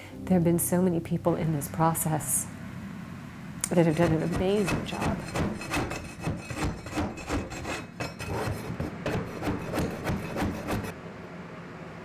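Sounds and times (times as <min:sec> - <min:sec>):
floor scraper rasping on wood: 0:03.7 - 0:10.9.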